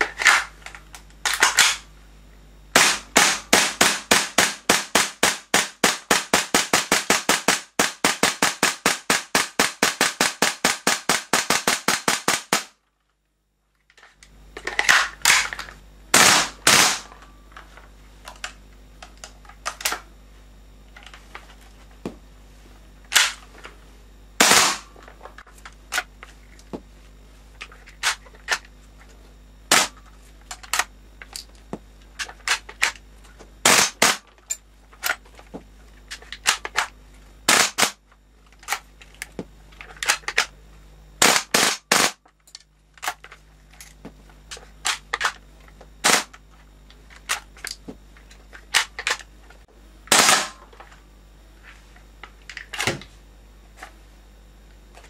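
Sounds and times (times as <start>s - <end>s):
airsoft gun firing: 2.7s - 12.8s, 16.1s - 17.1s, 24.4s - 24.9s, 29.7s - 30.0s, 33.6s - 34.2s, 37.5s - 38.0s, 41.2s - 42.2s, 46.0s - 46.4s, 50.1s - 50.6s.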